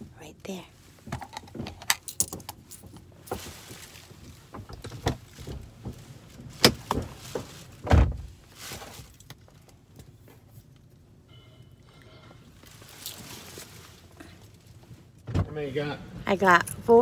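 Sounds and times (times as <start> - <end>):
rummaging clicks and rattles: 1.2 - 3.8.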